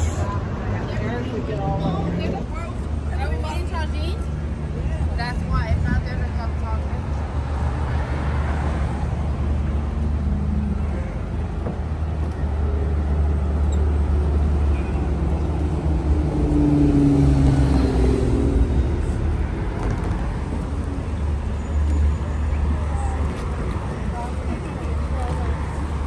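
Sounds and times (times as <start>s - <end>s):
road traffic: 0.0s - 26.0s
loud vehicle passing: 12.6s - 26.0s.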